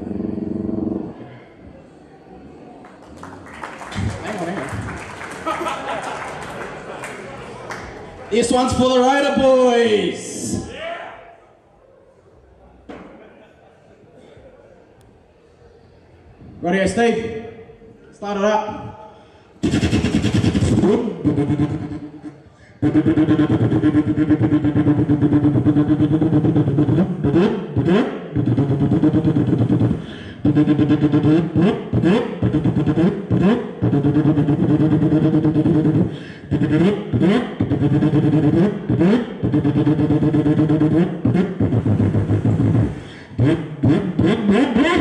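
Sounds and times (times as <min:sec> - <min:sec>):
man imitating car engine: 0:19.6 - 0:45.0.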